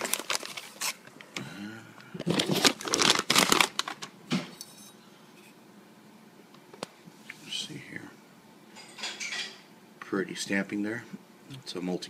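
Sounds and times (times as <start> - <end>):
plastic bag crinkling: 0.0 - 1.1, 2.2 - 4.1.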